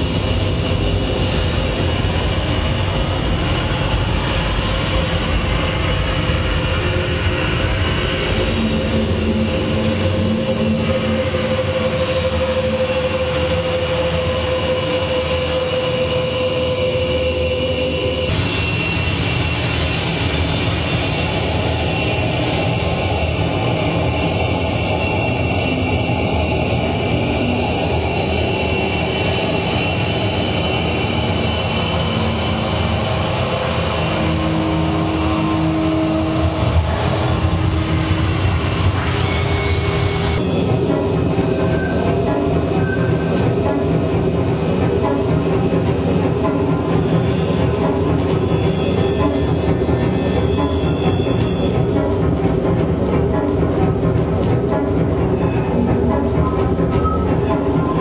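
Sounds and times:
electronic noise drone: 0.0s - 53.1s.

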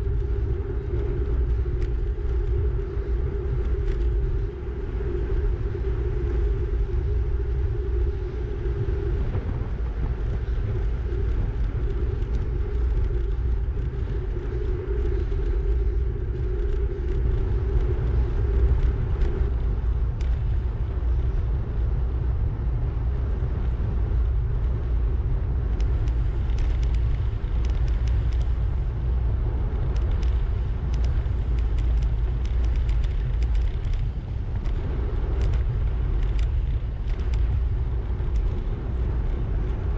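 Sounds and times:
steady hum: 0.0s - 39.9s
wind buffeting microphone: 0.0s - 39.9s
light ticks: 20.2s - 20.5s, 25.7s - 28.6s, 29.7s - 39.8s.

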